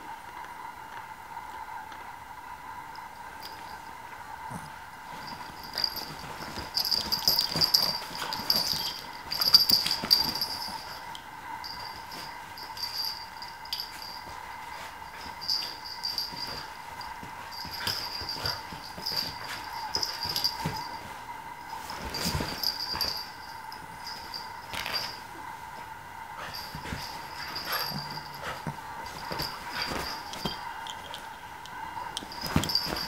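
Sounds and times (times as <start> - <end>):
dog play noises: 0.3 - 33.0
bedding scuffling and rustling: 4.4 - 33.0.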